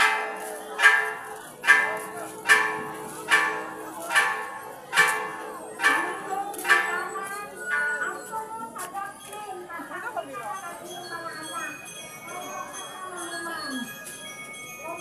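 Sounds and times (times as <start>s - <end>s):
church bell tolling: 0.0s - 8.3s.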